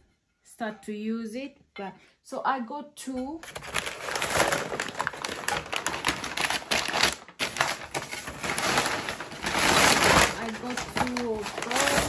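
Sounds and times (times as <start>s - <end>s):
wrapping paper crinkling: 3.4s - 12.0s.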